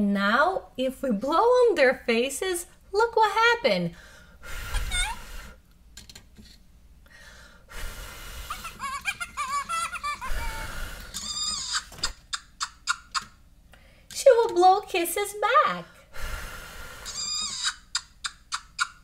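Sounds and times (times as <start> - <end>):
blowing breath: 4.0 - 5.6, 7.1 - 8.8, 10.3 - 11.2, 16.1 - 17.5
toy electronic chattering and squeals: 11.2 - 13.3, 17.1 - 18.0.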